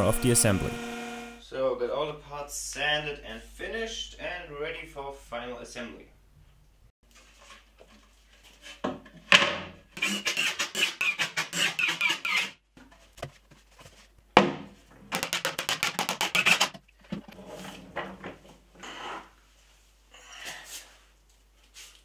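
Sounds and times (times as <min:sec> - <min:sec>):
sharp wooden knocks: 0:14.4 - 0:16.8.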